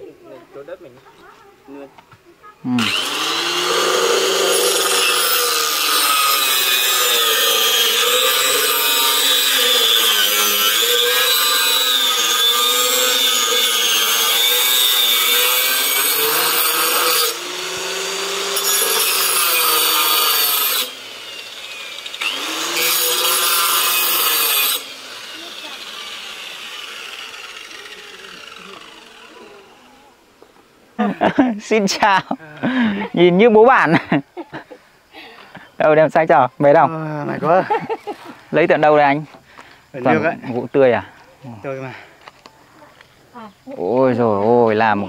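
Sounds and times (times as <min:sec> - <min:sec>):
circular saw cutting wood: 0:02.7 - 0:30.2.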